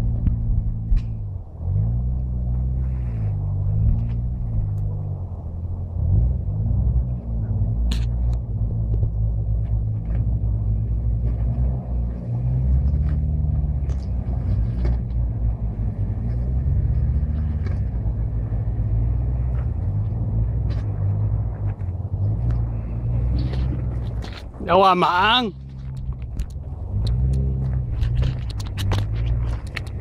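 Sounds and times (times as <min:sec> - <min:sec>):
off-road engine running: 0:00.0 - 0:30.0
stones clicking and knocking: 0:25.6 - 0:30.0.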